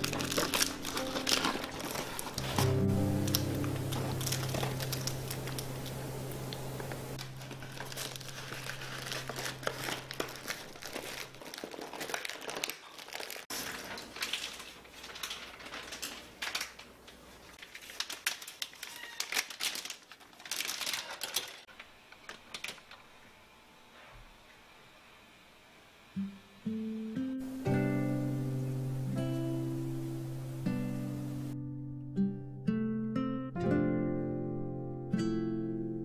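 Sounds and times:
cloth wrap crinkling: 0.0s - 23.0s
food package crinkling: 0.0s - 23.0s.

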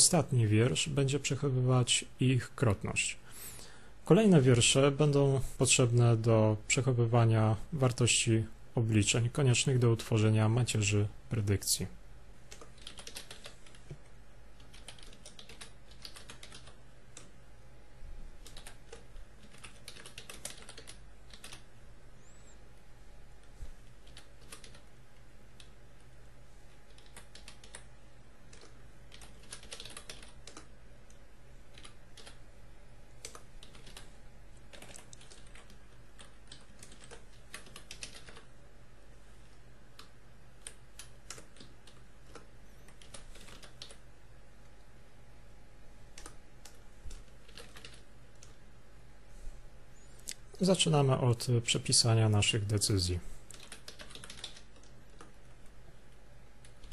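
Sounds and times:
steady low hum: 0.0s - 56.9s
keyboard typing: 12.5s - 17.4s, 18.4s - 21.7s, 23.4s - 24.9s, 26.7s - 27.9s, 28.5s - 32.4s, 33.1s - 38.5s, 39.9s - 44.0s, 46.1s - 48.6s, 53.5s - 55.8s, 56.6s - 56.9s.

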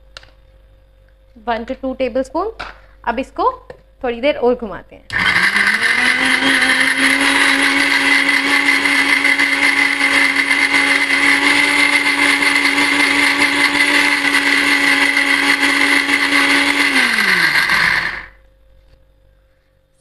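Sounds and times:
mixer grinder running: 5.1s - 18.4s.

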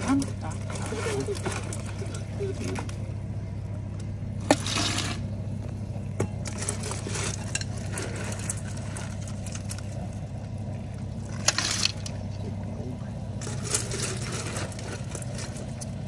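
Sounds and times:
gas burner humming: 0.0s - 16.0s
light clatter: 3.9s - 16.0s.

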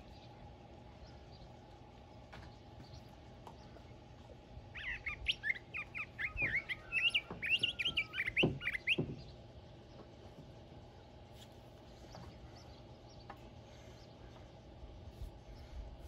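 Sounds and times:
songbird warbling song: 4.7s - 10.1s.

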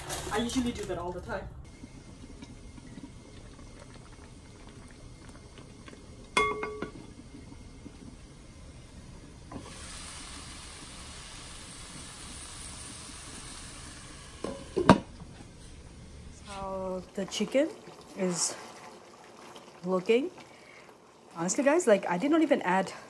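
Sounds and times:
food bubbling in a pot: 1.6s - 23.0s
sizzling hiss: 5.0s - 17.1s.

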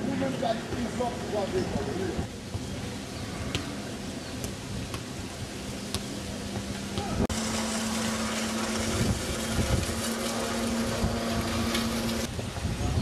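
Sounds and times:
outdoor background noise: 0.0s - 13.0s
low motor hum: 4.3s - 12.3s.

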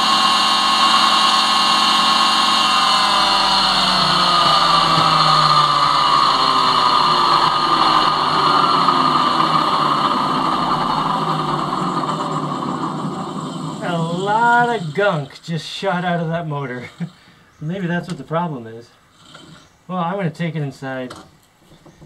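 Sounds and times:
electric motor whining: 0.0s - 15.3s.

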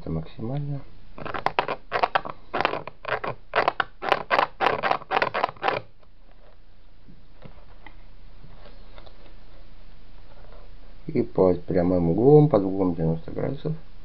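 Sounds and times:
pencil scratching along a ruler: 1.2s - 5.9s.

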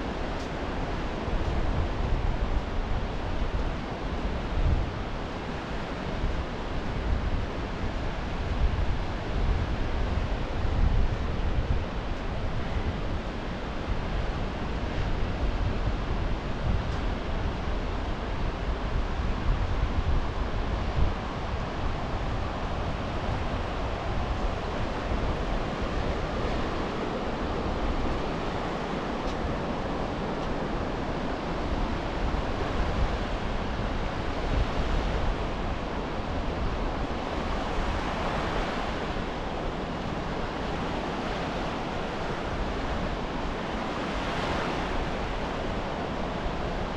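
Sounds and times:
wind rumble on microphone: 0.0s - 46.9s
ocean waves breaking: 11.2s - 46.9s.

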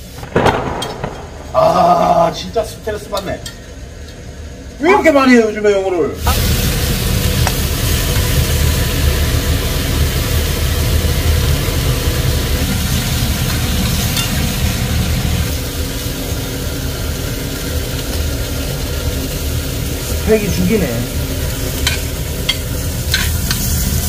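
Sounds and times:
low rumble: 0.2s - 2.4s
meat sizzling in a frying pan: 6.2s - 24.0s.

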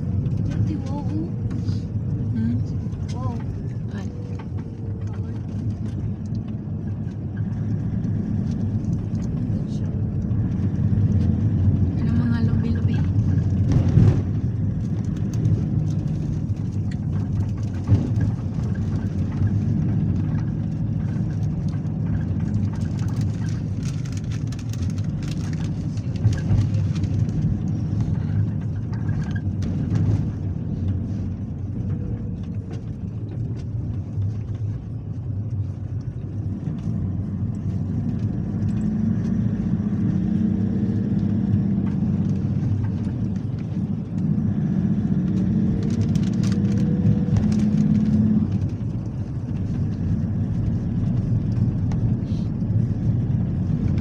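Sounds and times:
car engine and tyre rumble: 0.0s - 54.0s
knocks and rattles from bumps: 12.6s - 31.0s.

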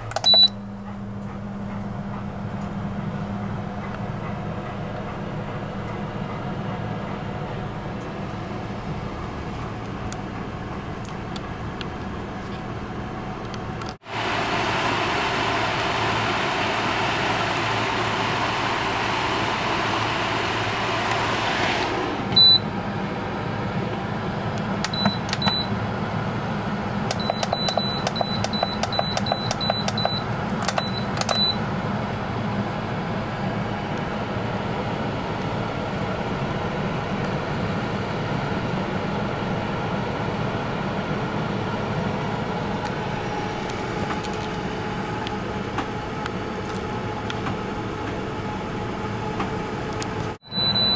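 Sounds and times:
cooking pot fan whirring: 0.0s - 50.9s
control panel short beeps: 0.1s - 0.6s, 22.4s - 22.6s, 24.9s - 25.7s, 27.1s - 31.6s, 50.4s - 50.9s
single beep: 0.2s - 0.6s, 50.4s - 50.9s.

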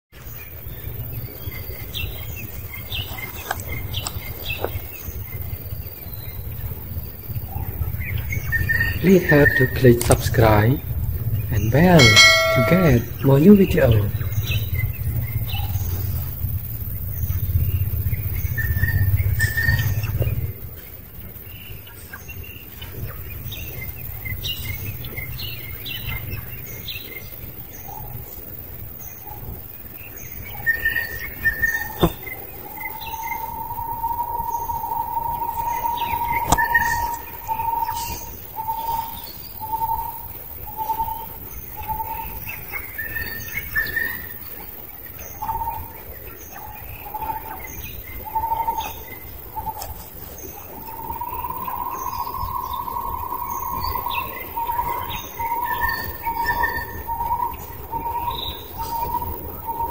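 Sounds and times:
birds chirping: 0.6s - 16.2s
faint steady high tone: 11.6s - 14.2s
high chirps: 11.8s - 13.8s.

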